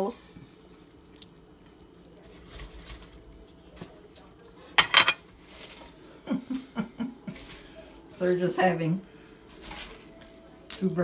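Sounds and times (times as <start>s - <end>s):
tableware clattering: 4.8s - 6.0s.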